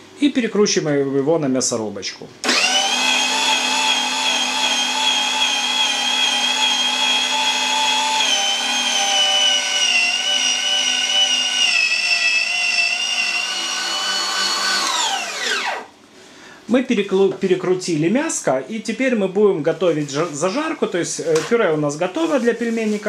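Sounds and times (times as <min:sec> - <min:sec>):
electric meat grinder whining: 0:02.4 - 0:15.9.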